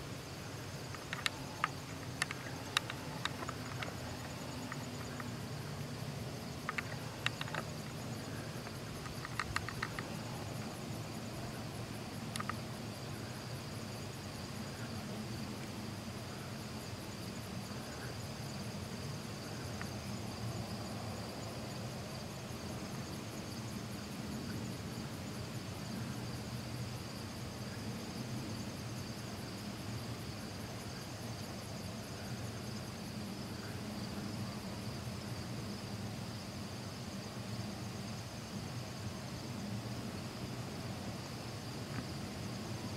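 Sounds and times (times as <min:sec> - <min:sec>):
insects trilling: 0:00.0 - 0:42.9
faint clicks: 0:00.9 - 0:05.4, 0:06.6 - 0:10.3, 0:12.3 - 0:12.6.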